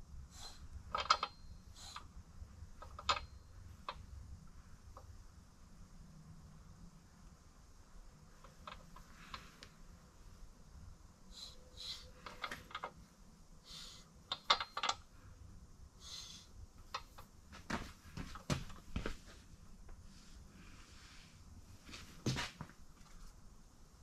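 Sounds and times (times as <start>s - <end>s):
light metallic clicks and knocks: 0.9s - 1.4s, 2.8s - 4.1s, 8.4s - 9.7s, 12.2s - 13.0s, 14.3s - 15.1s.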